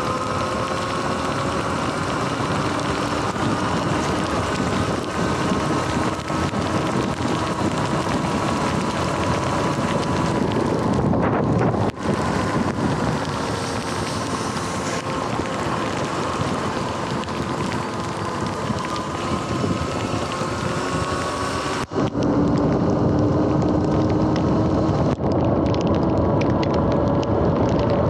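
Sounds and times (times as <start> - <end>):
electric motor whine: 0.0 - 28.0
wind noise on microphone: 0.0 - 28.0.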